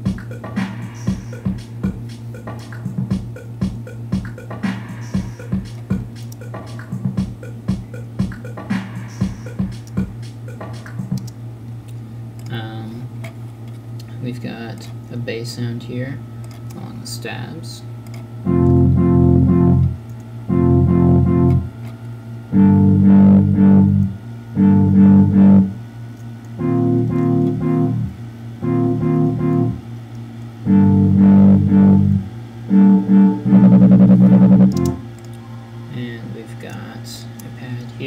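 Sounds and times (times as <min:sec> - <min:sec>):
synthesizer bass: 0:00.0 - 0:11.3, 0:18.4 - 0:21.8, 0:22.5 - 0:25.8, 0:26.6 - 0:29.9, 0:30.6 - 0:35.2
synth chord stabs: 0:18.4 - 0:21.8, 0:22.5 - 0:25.8, 0:26.6 - 0:30.0, 0:30.6 - 0:36.2.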